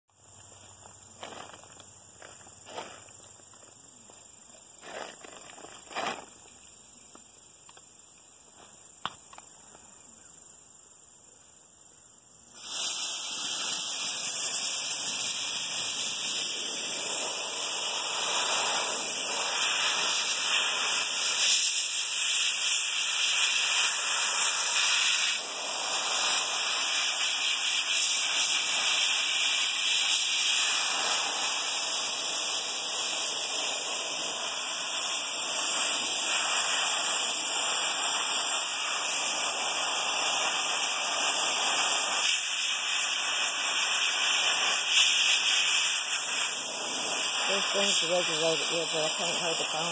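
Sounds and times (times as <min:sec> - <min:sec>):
soda blaster hissing: 0:12.4 - 0:49.9.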